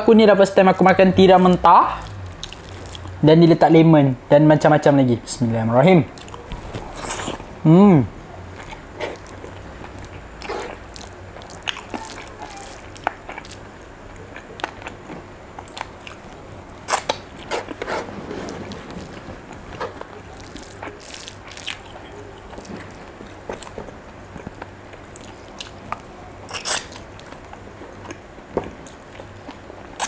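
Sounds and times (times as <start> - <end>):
chewing and wet mouth sounds: 1.9 - 3.2, 6.1 - 7.5, 8.5 - 30.0
sticky squelches of fingers mixing rice: 19.0 - 23.2.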